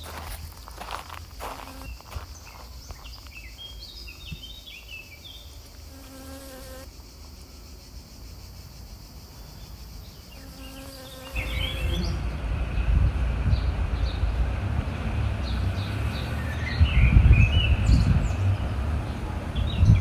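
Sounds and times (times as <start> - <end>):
small birds chirping: 0.0 - 20.0
honeybee buzzing in flight: 1.6 - 1.9, 5.8 - 6.9, 10.3 - 12.2, 15.6 - 16.4
low rumble: 11.5 - 20.0.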